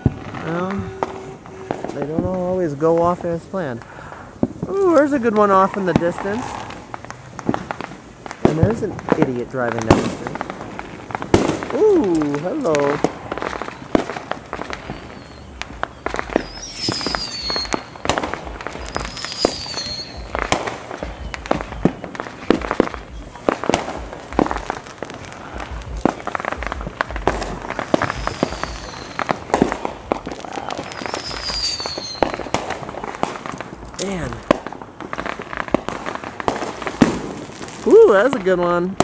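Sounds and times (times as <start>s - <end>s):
falling firework whistle: 0.0s - 2.3s, 11.6s - 24.6s, 25.3s - 33.4s
fireworks bangs and pops: 0.0s - 39.0s
low rumbling booms: 0.0s - 39.0s.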